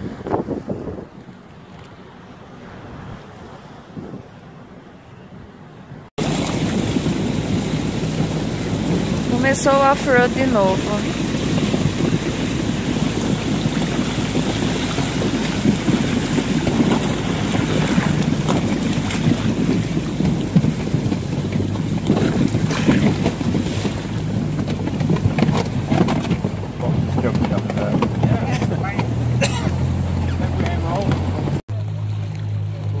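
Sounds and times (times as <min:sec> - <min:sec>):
wind buffeting microphone: 0:00.0 - 0:31.6
water rushing past: 0:00.0 - 0:33.0
boat pushing through ice: 0:06.1 - 0:33.0
outboard motor running: 0:06.2 - 0:33.0.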